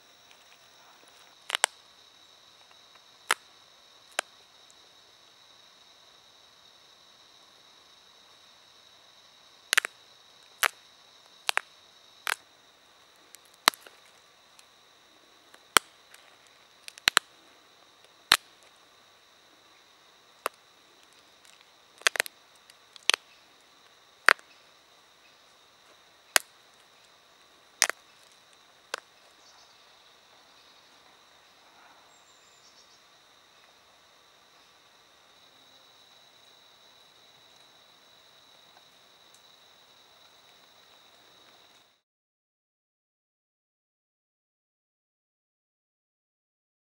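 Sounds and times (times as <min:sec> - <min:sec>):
flint flakes snapping clicks: 0:01.5 - 0:01.8, 0:09.7 - 0:10.8, 0:13.3 - 0:14.0, 0:16.9 - 0:17.3, 0:18.3 - 0:18.6, 0:20.4 - 0:23.2, 0:26.3 - 0:26.5, 0:27.8 - 0:29.0.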